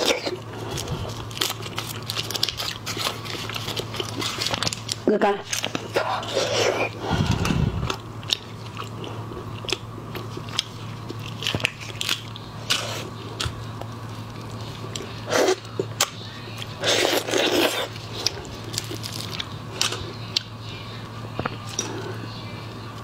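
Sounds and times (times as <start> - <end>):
prawn shell crackling and snapping: 0.0 - 20.6.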